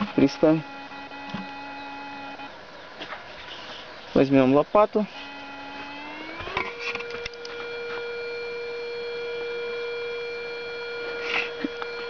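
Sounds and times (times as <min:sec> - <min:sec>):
metal detector tone: 0:00.0 - 0:02.6.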